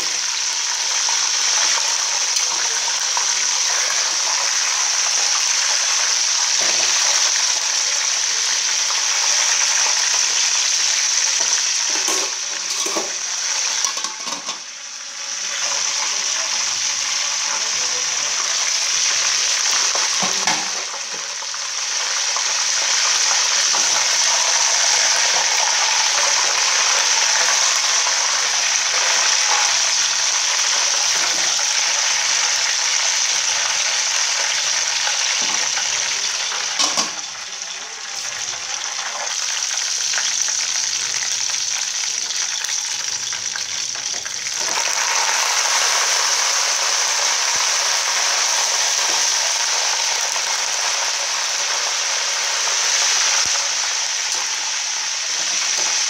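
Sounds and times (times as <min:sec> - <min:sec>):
chicken sizzling in hot oil: 0:00.0 - 0:56.0.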